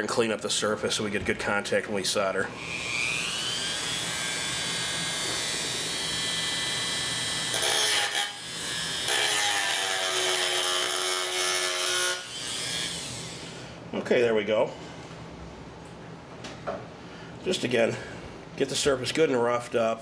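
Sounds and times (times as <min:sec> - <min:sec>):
rotary tool whining: 0:02.6 - 0:13.6.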